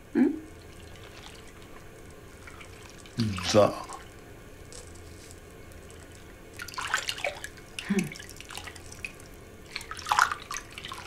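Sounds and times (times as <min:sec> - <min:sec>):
water dripping: 0:00.5 - 0:04.2, 0:05.7 - 0:11.0
bathwater sloshing and splashing: 0:00.5 - 0:11.0.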